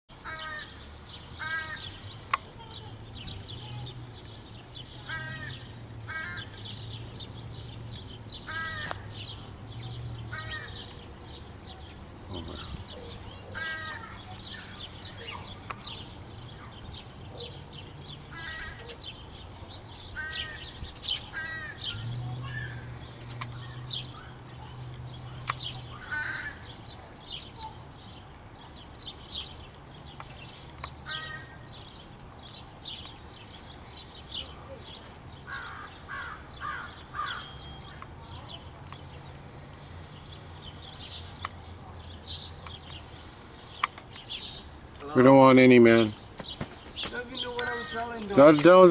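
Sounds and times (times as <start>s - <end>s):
young crows cawing: 0.2s - 2.8s, 5.0s - 6.8s, 8.4s - 9.3s, 10.2s - 11.0s, 12.4s - 17.0s, 18.2s - 19.2s, 20.0s - 24.4s, 25.2s - 26.9s, 31.0s - 31.8s, 35.4s - 38.0s, 47.1s - 48.2s.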